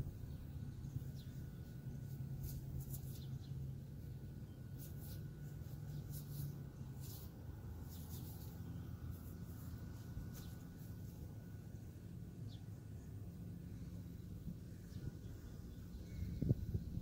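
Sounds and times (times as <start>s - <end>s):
low steady rumble: 0.0s - 17.0s
fingers scratching crystal: 4.7s - 11.2s.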